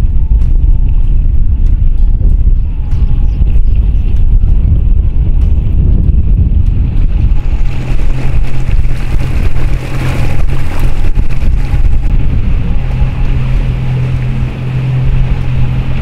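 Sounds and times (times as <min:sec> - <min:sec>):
outboard engine hum: 0:00.0 - 0:16.0
wind buffeting microphone: 0:00.0 - 0:16.0
water rushing past hull: 0:06.3 - 0:16.0.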